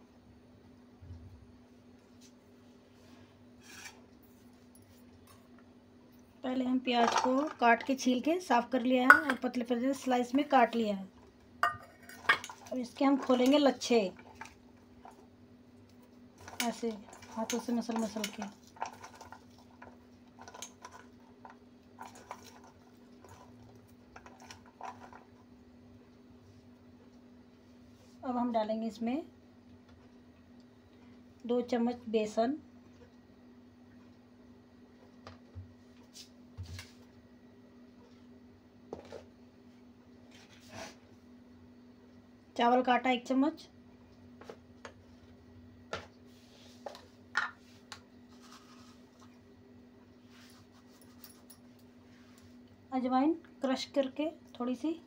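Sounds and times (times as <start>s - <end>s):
onion rustling in steel bowl: 16.4s - 23.6s.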